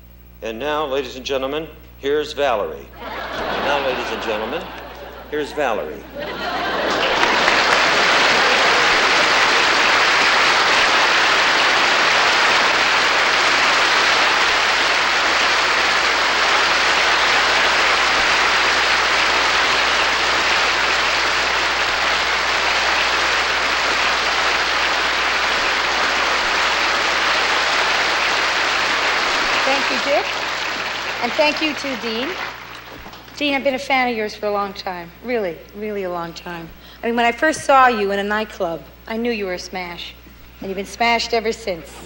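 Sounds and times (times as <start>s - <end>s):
audience applause: 3.0s - 33.4s.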